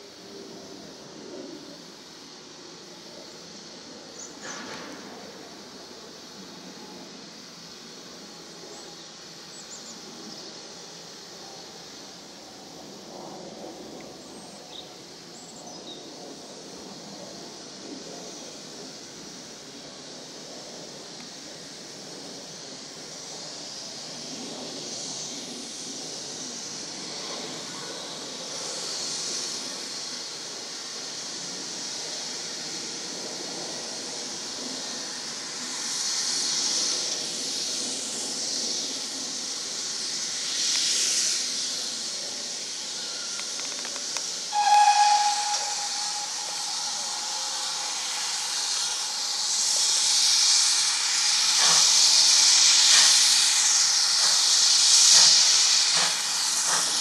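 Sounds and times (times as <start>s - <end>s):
steam locomotive hissing: 0.0s - 57.0s
locomotive whistle blast: 44.5s - 48.6s.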